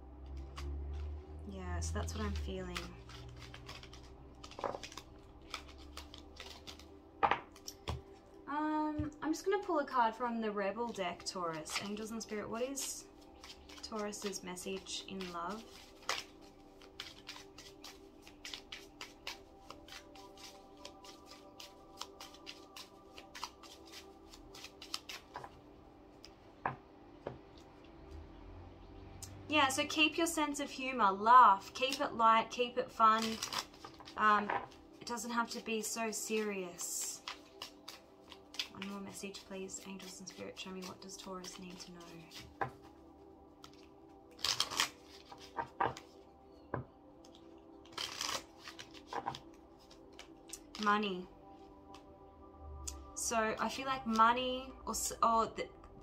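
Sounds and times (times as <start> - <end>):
cards being shuffled: 0.2 - 8.4, 10.7 - 25.6, 31.7 - 43.0, 43.6 - 51.1.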